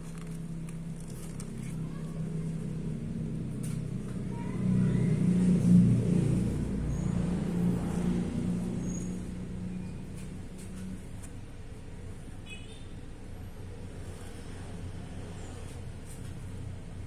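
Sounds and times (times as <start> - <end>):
vehicle engine running: 0.0 - 12.4.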